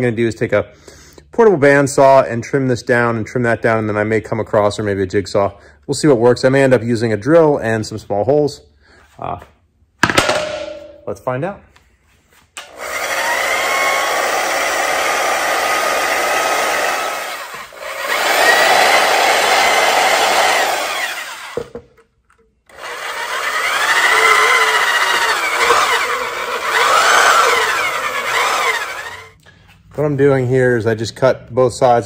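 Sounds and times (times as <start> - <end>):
band saw cutting plastic: 22.7 - 29.4.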